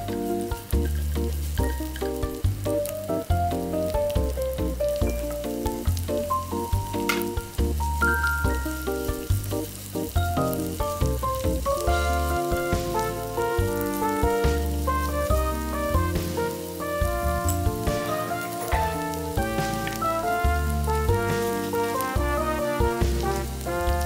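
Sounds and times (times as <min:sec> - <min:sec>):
background music with bass line: 0:00.0 - 0:24.0
onions sizzling in oil: 0:00.0 - 0:24.0
stirring in frying pan: 0:00.0 - 0:24.0.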